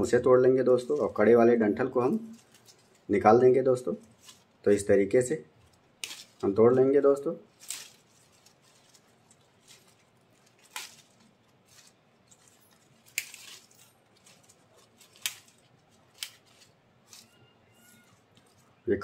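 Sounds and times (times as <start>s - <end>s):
leaves rustling: 0.0s - 19.0s
stems snapping by hand: 5.6s - 6.8s, 7.5s - 17.4s.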